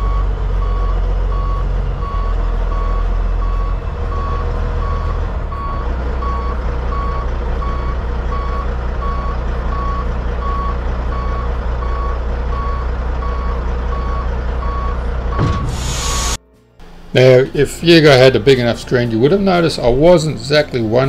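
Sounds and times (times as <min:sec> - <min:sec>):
truck reversing alarm beeping: 0:00.0 - 0:16.4
diesel engine running: 0:00.0 - 0:19.7.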